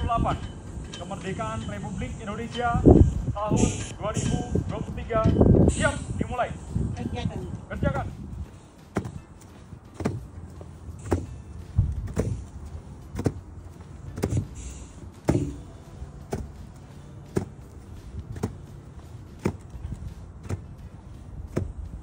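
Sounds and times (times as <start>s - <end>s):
footsteps marching on grass: 6.7s - 22.0s.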